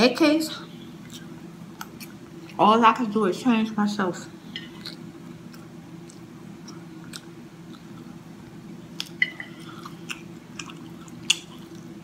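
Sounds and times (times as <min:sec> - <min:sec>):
steady low hum: 0:00.0 - 0:12.0
person chewing: 0:00.9 - 0:02.6, 0:04.5 - 0:12.0.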